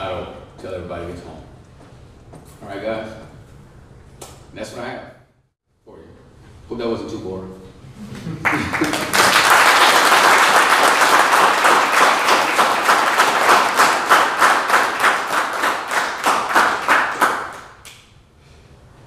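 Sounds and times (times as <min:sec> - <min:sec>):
audience applauding: 0:08.4 - 0:18.0.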